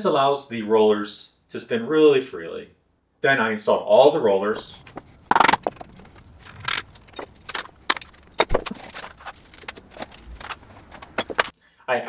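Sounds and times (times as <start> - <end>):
metal bolts and washers clinking: 4.7 - 11.5.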